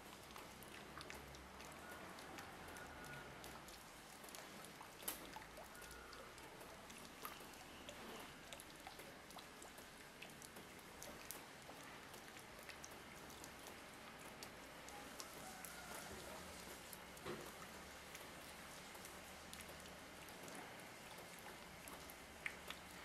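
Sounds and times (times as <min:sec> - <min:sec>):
soft steady hiss: 0:00.0 - 0:23.0
water dripping: 0:00.0 - 0:23.0.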